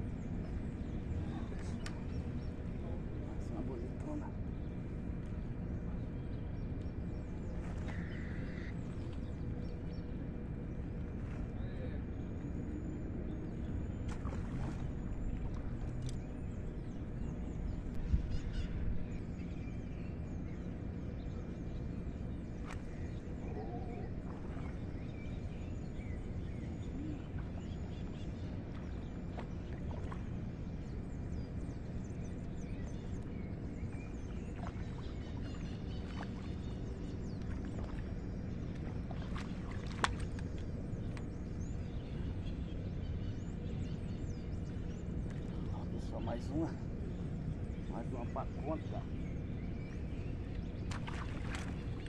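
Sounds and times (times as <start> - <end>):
low outdoor background noise: 0.0 - 52.0
faint clicks: 1.6 - 2.0, 40.0 - 41.3.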